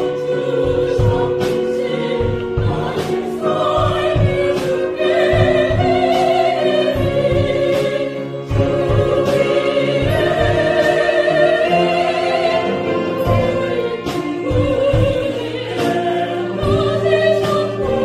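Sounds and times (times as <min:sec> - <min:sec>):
choir singing worship song: 0:00.0 - 0:18.0
piano: 0:00.0 - 0:18.0
string orchestra: 0:00.0 - 0:18.0.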